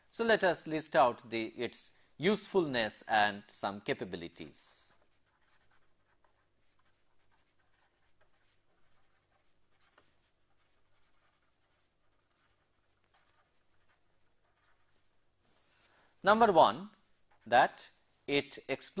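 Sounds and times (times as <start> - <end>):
pen scratching on paper: 4.4 - 15.3.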